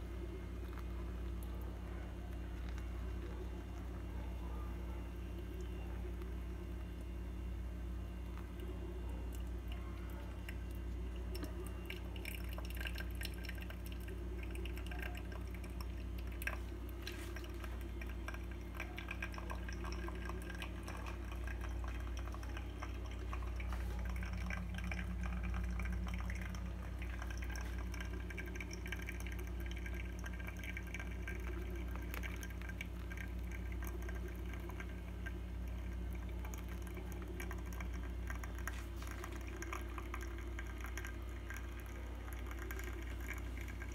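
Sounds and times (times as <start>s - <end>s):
coffee dripping into carafe: 0.0s - 43.9s
steady low hum: 0.0s - 43.9s
water pouring from kettle: 10.4s - 43.9s.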